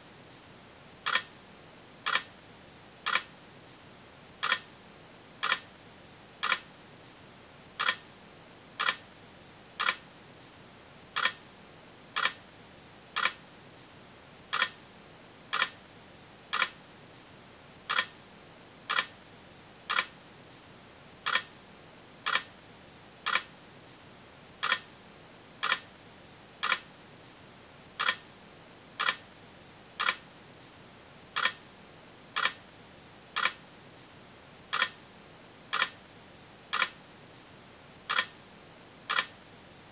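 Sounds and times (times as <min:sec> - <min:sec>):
steady hiss: 0:00.0 - 0:39.9
sharp mechanical clicks: 0:01.0 - 0:01.3, 0:02.1 - 0:02.3, 0:03.0 - 0:03.3, 0:04.4 - 0:04.7, 0:05.4 - 0:05.7, 0:06.4 - 0:06.7, 0:07.8 - 0:08.0, 0:08.8 - 0:09.0, 0:09.8 - 0:10.0, 0:11.2 - 0:11.4, 0:12.2 - 0:12.4, 0:13.2 - 0:13.4, 0:14.5 - 0:14.8, 0:15.5 - 0:15.8, 0:16.5 - 0:16.8, 0:17.9 - 0:18.1, 0:18.9 - 0:19.1, 0:19.9 - 0:20.1, 0:21.2 - 0:21.5, 0:22.3 - 0:22.5, 0:23.3 - 0:23.5, 0:24.6 - 0:24.9, 0:25.6 - 0:25.9, 0:26.6 - 0:26.9, 0:28.0 - 0:28.2, 0:29.0 - 0:29.2, 0:30.0 - 0:30.2, 0:31.4 - 0:31.6, 0:32.4 - 0:32.6, 0:33.4 - 0:33.6, 0:34.7 - 0:35.0, 0:35.7 - 0:36.0, 0:36.7 - 0:37.0, 0:38.1 - 0:38.3, 0:39.1 - 0:39.3.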